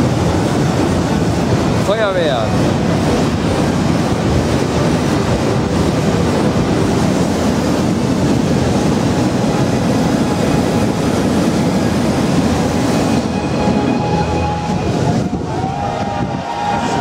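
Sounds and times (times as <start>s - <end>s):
firework fountains hissing: 0.0s - 13.5s
propane burners roaring: 0.0s - 17.0s.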